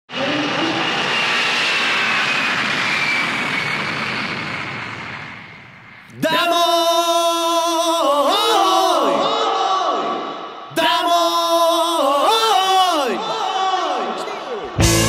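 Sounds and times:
jet airliner passing: 0.1 - 6.1.

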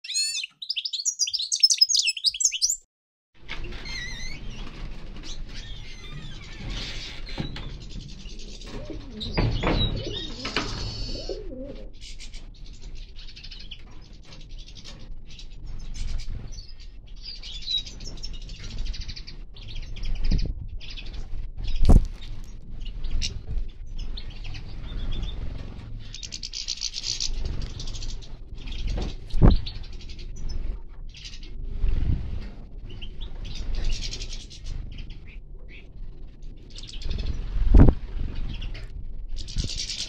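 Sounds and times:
finches chirping and twittering: 0.0 - 2.8, 5.3 - 22.0, 22.8 - 31.6, 32.8 - 35.9, 36.7 - 40.0
bird wing flutters: 21.1 - 22.6.

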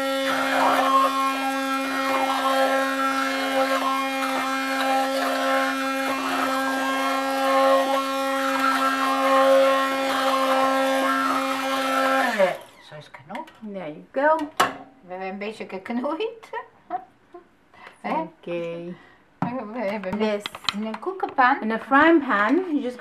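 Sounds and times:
stick blender motor humming: 0.0 - 12.8.

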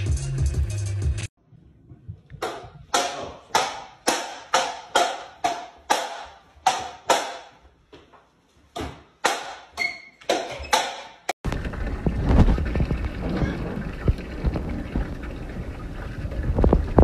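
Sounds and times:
table tennis ball hits: 2.4 - 7.6, 8.8 - 11.3.

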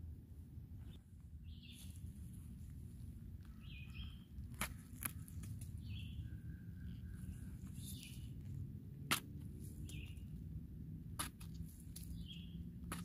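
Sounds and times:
low steady rumble: 0.0 - 13.0
bird chirping: 0.8 - 2.1, 3.4 - 8.6, 9.6 - 10.4, 12.0 - 13.0.

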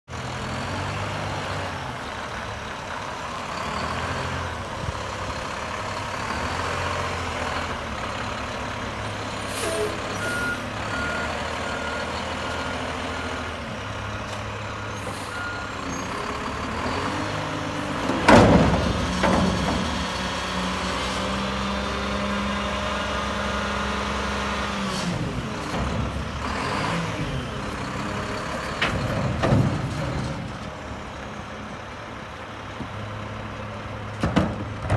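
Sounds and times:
garbage truck engine running: 0.2 - 34.9
air brake hiss: 9.4 - 10.2.

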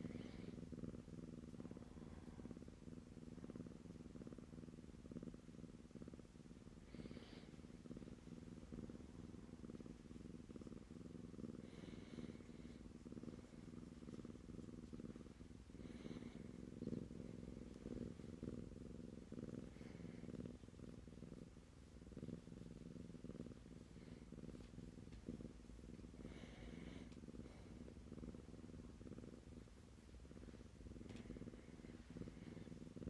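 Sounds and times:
kitten purring: 0.0 - 33.0
faint rustles: 6.6 - 33.0.

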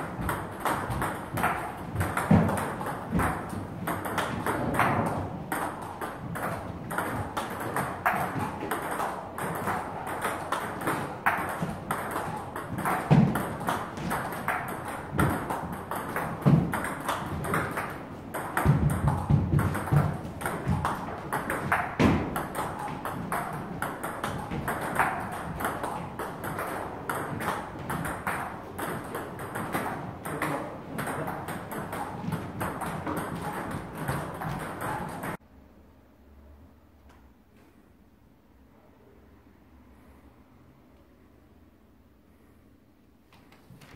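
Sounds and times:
heavy thumps: 18.6 - 25.8.

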